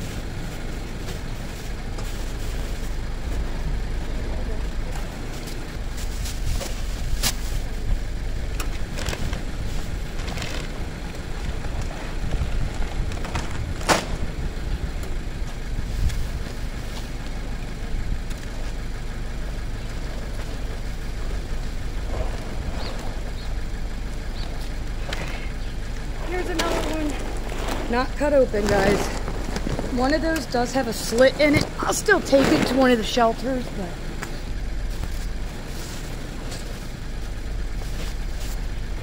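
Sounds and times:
low rumble: 0:00.0 - 0:39.0
plastic trash bags crackling: 0:08.8 - 0:14.4, 0:26.0 - 0:33.6.

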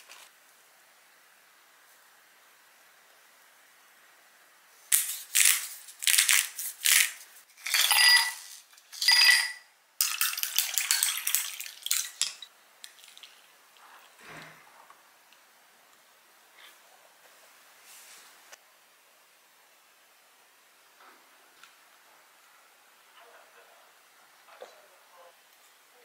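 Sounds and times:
ice cubes clinking into glass: 0:05.4 - 0:12.5
glass ringing: 0:07.7 - 0:09.7.

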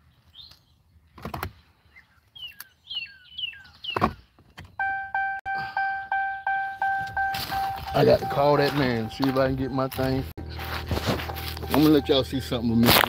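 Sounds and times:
falling chirps: 0:04.8 - 0:12.3
car door warning chime dinging: 0:04.8 - 0:12.9.

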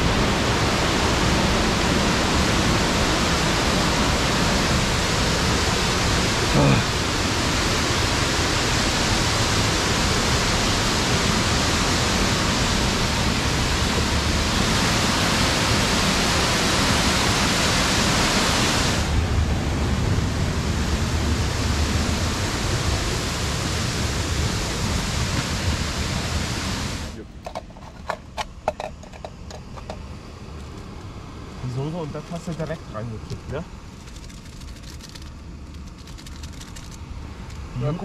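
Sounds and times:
stream water rushing: 0:00.0 - 0:27.2.

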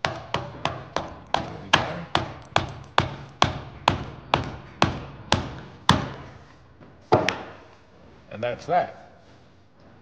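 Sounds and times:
rubber mallet striking steel pin: 0:00.0 - 0:06.2.

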